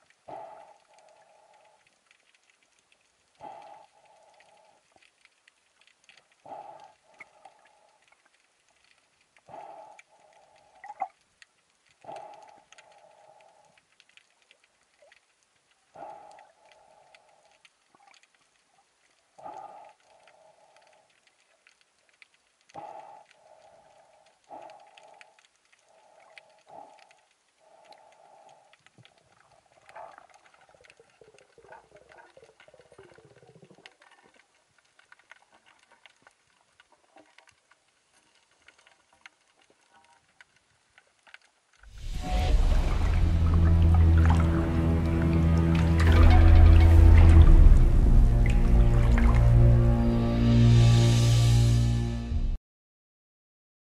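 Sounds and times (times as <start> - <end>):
underwater crackle of clicks: 0.0 - 41.9
wavering lower tone: 42.0 - 51.7.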